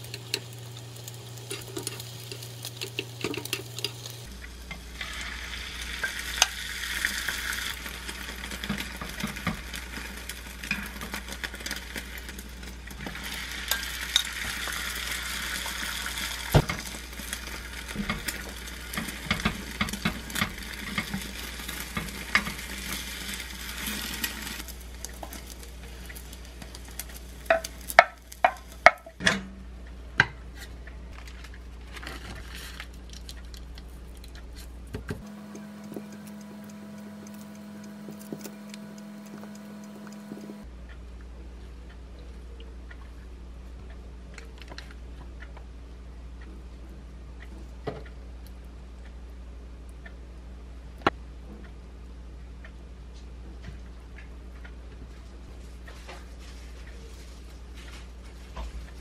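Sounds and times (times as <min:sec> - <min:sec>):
egg sizzling in a pan: 0:00.0 - 0:29.2, 0:32.0 - 0:40.7
utensils scraping and tapping pan: 0:01.4 - 0:04.2, 0:07.2 - 0:24.4, 0:25.1 - 0:29.3.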